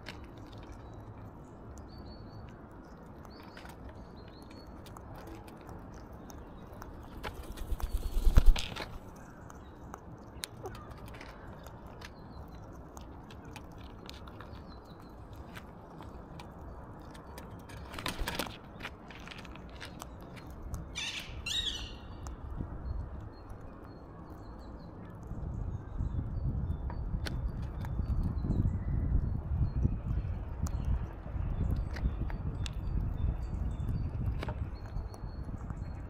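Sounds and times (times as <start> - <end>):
beak clicking on seeds: 0.0 - 25.3
bird scuffling: 7.1 - 9.1.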